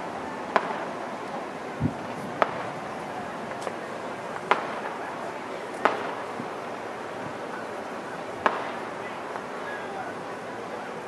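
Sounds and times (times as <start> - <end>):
steady background hiss: 0.0 - 11.0
distant firework pops: 0.5 - 0.9, 1.8 - 5.1, 5.7 - 6.4, 8.4 - 9.6.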